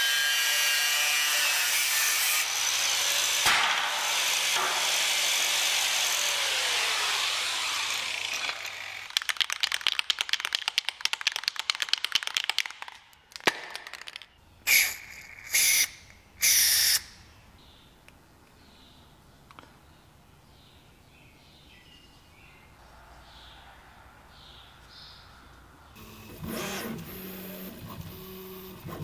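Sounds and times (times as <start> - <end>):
angle grinder running: 0.0 - 9.3
spray can ball rattling: 9.0 - 16.6
spray can hissing: 14.7 - 17.0.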